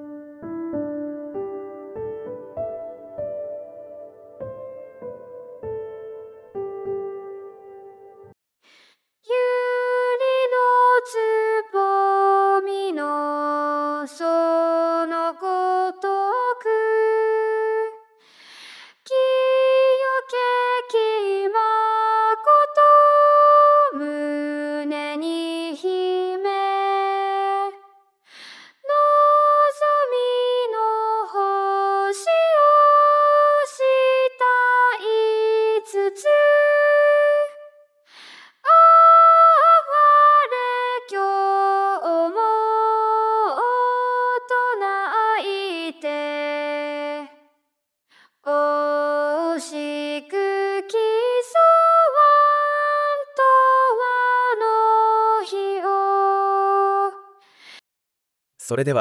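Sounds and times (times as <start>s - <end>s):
synthesized female voice singing: 9.3s - 18.0s, 19.0s - 27.8s, 28.8s - 37.7s, 38.5s - 47.4s, 48.4s - 57.4s.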